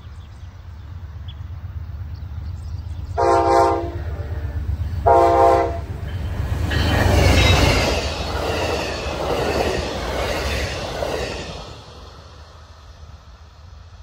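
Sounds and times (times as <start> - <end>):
train engine and wheels rumbling: 0.0 - 14.0
train horn blasts: 3.1 - 5.9.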